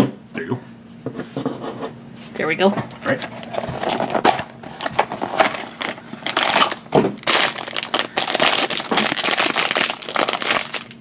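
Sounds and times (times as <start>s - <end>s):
foil wrapper crinkling and tearing: 3.3s - 11.0s.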